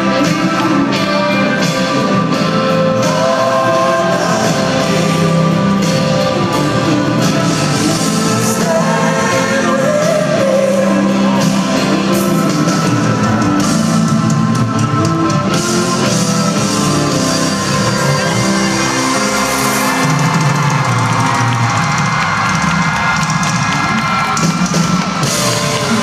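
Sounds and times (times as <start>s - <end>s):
person singing: 0.0s - 14.1s
live band music: 0.0s - 26.0s.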